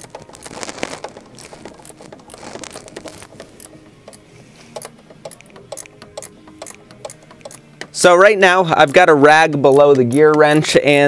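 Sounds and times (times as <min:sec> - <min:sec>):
ratchet wrench clicking: 0:04.8 - 0:08.0, 0:08.8 - 0:11.0.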